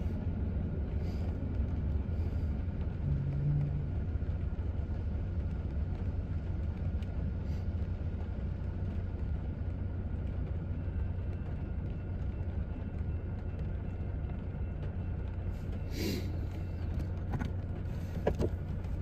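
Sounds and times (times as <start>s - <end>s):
car engine idling: 0.0s - 19.0s.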